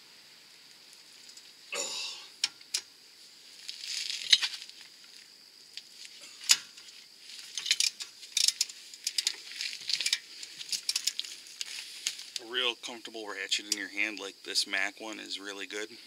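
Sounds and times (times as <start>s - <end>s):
metal clicks and clinks: 7.5s - 11.2s.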